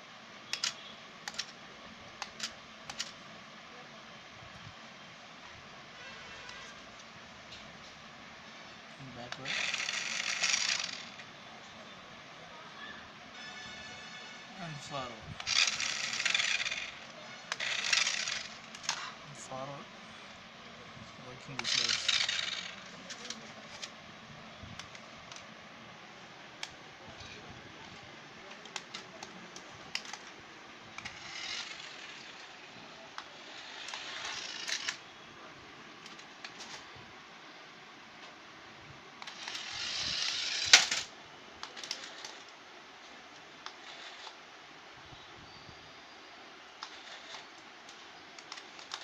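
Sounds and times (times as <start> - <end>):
toy car motor whirring: 9.3 - 11.3, 15.4 - 19.2, 21.4 - 23.9, 31.0 - 32.6, 33.2 - 35.0, 39.2 - 42.5, 43.6 - 44.4, 46.8 - 47.5, 48.4 - 49.0.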